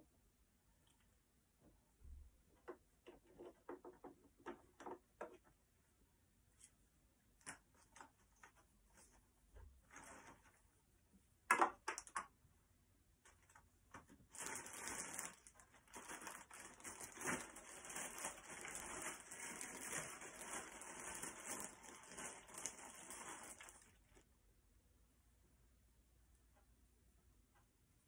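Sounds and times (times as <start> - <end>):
crinkly rustling of rummaging: 9.8 - 10.6, 14.2 - 24.2.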